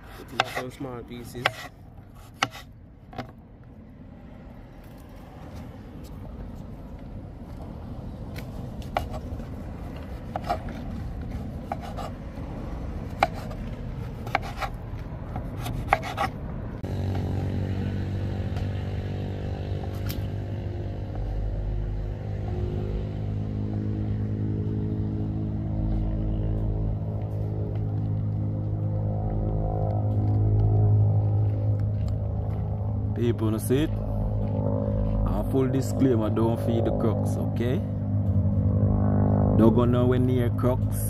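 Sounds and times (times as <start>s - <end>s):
blade scraping through pumpkin: 0.0s - 2.7s, 8.8s - 12.2s, 13.1s - 14.8s, 15.4s - 16.4s.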